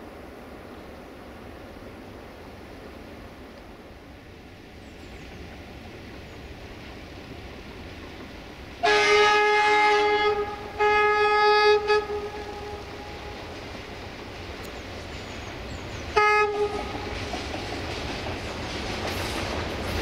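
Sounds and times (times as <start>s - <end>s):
locomotive air horn blasts: 8.8s - 13.4s, 16.2s - 17.0s.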